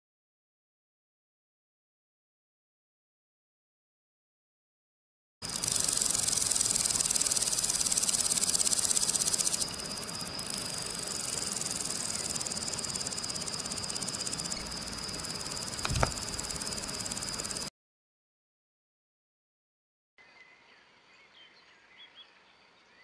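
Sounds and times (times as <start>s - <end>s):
grasshopper buzzing trill: 5.4s - 17.7s
low knock: 15.8s - 16.2s.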